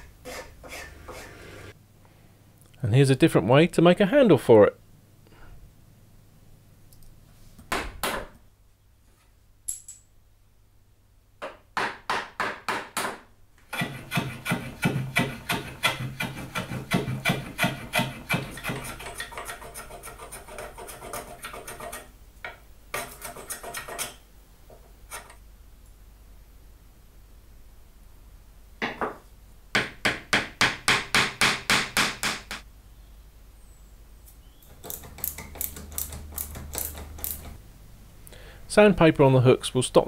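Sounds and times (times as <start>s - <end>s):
hand tool strokes on wood: 0.0s - 1.8s, 13.7s - 22.0s.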